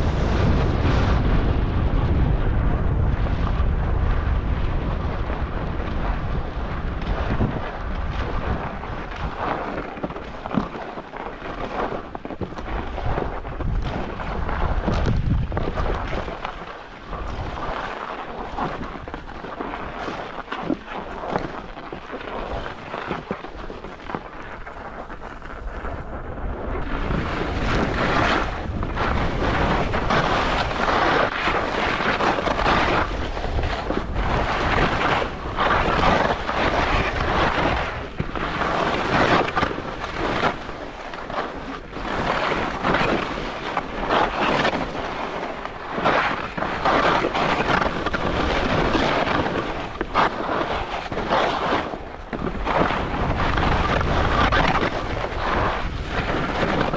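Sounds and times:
wind rushing over microphone: 0.0s - 56.9s
ski edges scraping snow: 7.1s - 56.9s.

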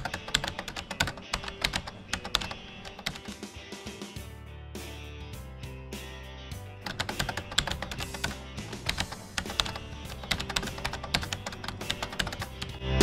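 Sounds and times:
keyboard key clicks: 0.0s - 3.4s, 6.9s - 12.7s
soft background music: 0.0s - 13.0s.

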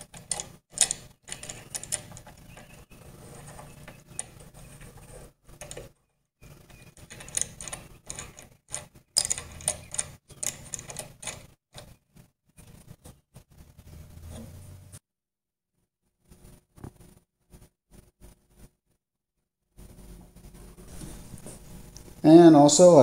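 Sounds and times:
threaded rod and wing nut clicking: 7.0s - 11.9s.

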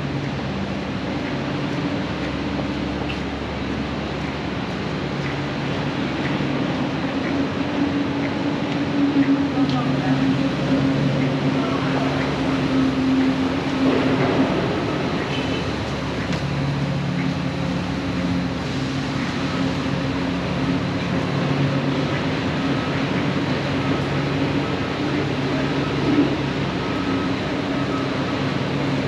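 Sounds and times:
machinery humming: 0.0s - 29.0s.

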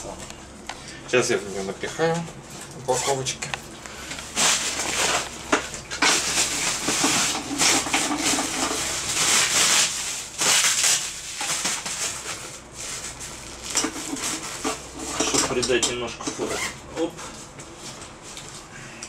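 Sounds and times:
plastic packaging crinkling: 3.9s - 15.0s.

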